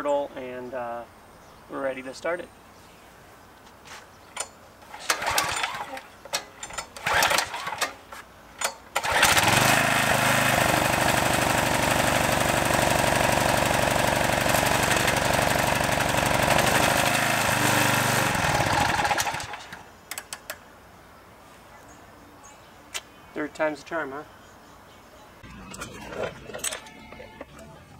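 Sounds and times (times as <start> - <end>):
rattling recoil starter pulls: 4.4 - 20.6, 25.6 - 27.6
small engine running: 7.0 - 7.8, 9.0 - 19.8.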